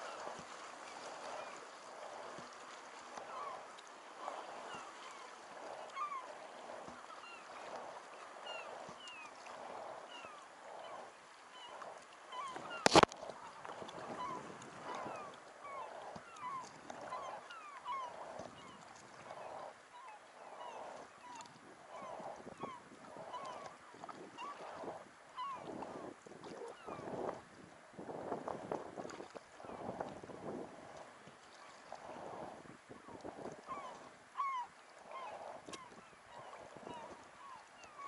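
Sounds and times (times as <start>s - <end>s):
seabirds calling: 0.0s - 27.2s, 33.0s - 38.0s
kayak paddle splashing: 0.0s - 27.4s.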